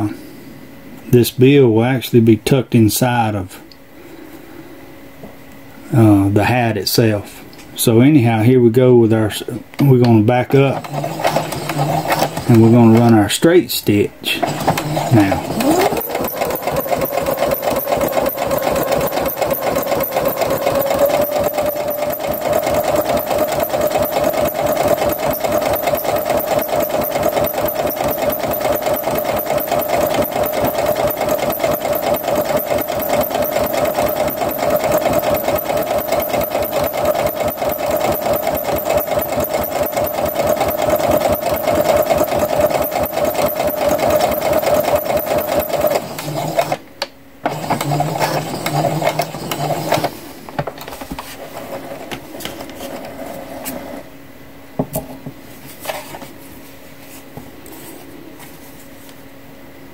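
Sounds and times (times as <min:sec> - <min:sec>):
sewing machine motor whine: 0:10.5 - 0:13.2, 0:14.3 - 0:46.8, 0:47.4 - 0:50.2.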